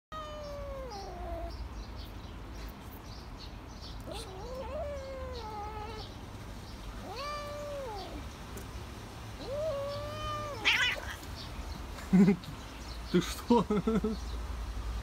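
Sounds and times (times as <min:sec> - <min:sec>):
cat yowling: 0:00.1 - 0:01.6, 0:04.0 - 0:06.1, 0:07.0 - 0:08.3, 0:09.4 - 0:11.3.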